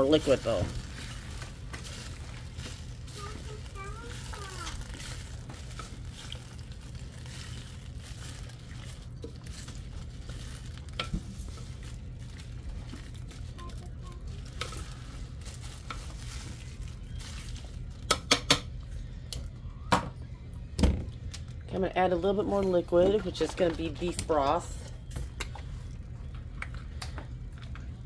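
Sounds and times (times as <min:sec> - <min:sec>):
utensil stirring vegetables in pot: 0:00.0 - 0:18.2
steady low hum: 0:00.0 - 0:28.0.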